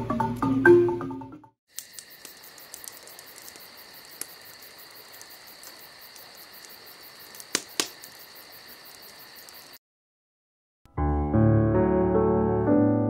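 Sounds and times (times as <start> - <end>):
bonfire embers popping: 1.7 - 9.8
insects trilling: 1.7 - 9.8.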